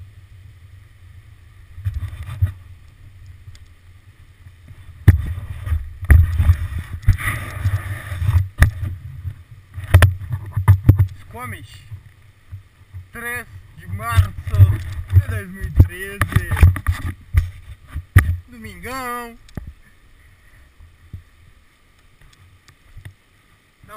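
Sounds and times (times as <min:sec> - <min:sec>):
wind rumble on microphone: 0:00.0 - 0:18.7.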